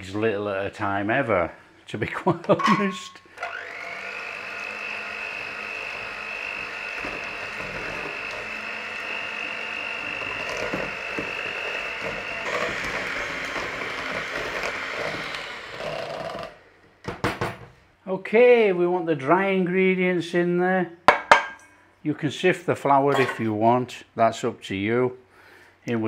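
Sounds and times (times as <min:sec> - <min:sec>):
electric hand mixer whining: 0:03.3 - 0:16.8.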